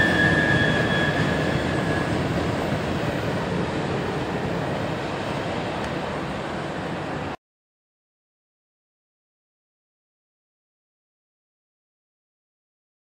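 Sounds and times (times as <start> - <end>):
high wheel squeal: 0.0 - 3.5
train wheels rumbling on rail: 0.0 - 7.3.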